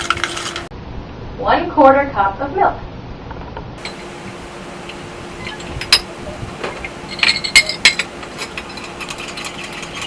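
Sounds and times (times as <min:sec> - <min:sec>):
metal spoon clinking against glass: 0:07.1 - 0:10.0.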